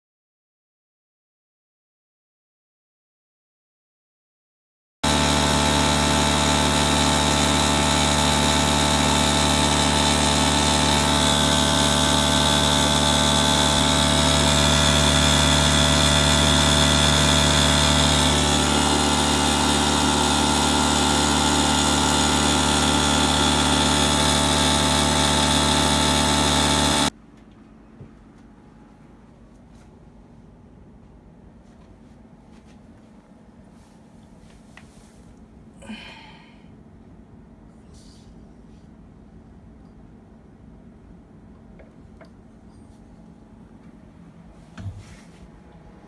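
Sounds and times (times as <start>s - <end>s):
machine motor and compressor hum: 5.0s - 27.2s.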